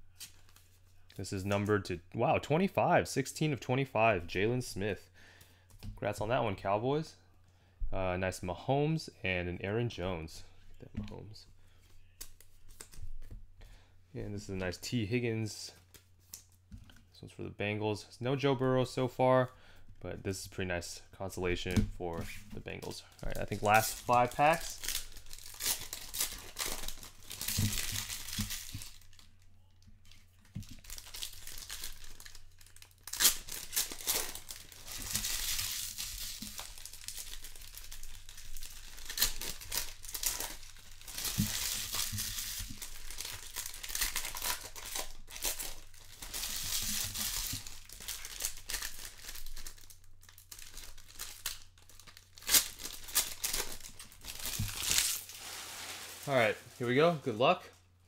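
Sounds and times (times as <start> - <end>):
foil wrappers crinkling: 22.6 - 29.4, 30.0 - 57.2.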